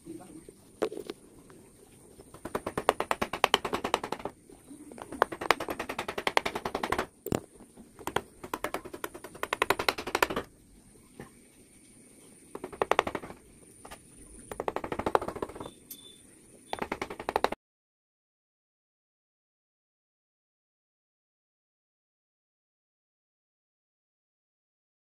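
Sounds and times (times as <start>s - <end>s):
metal punch tapping wood: 2.4s - 4.3s, 8.0s - 10.5s, 12.6s - 13.4s.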